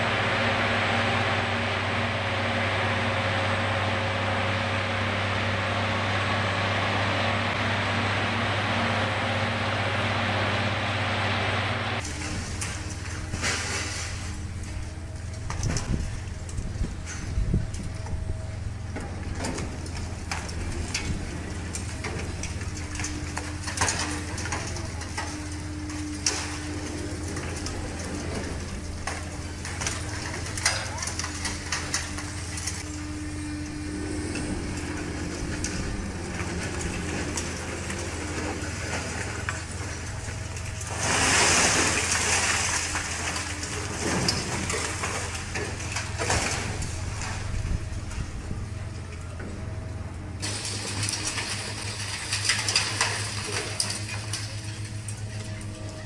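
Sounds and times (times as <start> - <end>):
excavator engine running: 0.0 - 56.0
debris falling and clattering: 18.9 - 32.9, 50.4 - 55.4.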